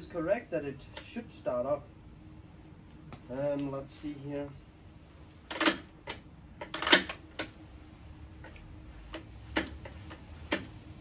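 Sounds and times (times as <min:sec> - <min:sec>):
sharp metallic clicks and knocks: 0:05.4 - 0:07.6, 0:08.4 - 0:10.8.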